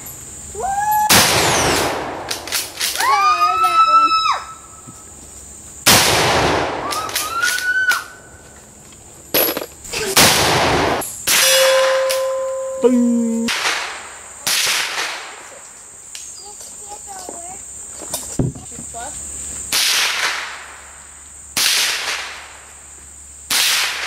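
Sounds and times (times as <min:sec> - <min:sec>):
gunshots with long echo: 0:05.9 - 0:06.9, 0:10.2 - 0:11.0
steady ringing tone: 0:11.4 - 0:13.5.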